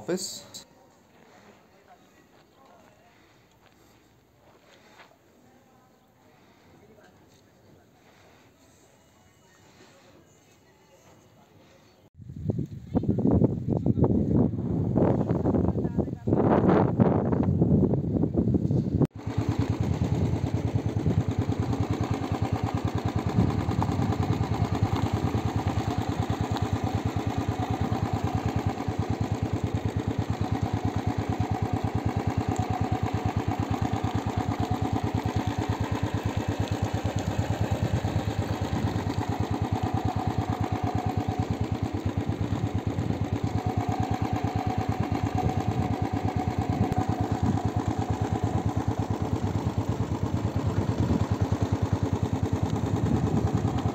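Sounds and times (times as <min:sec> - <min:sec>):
motorcycle engine chugging: 0:19.1 - 0:53.9.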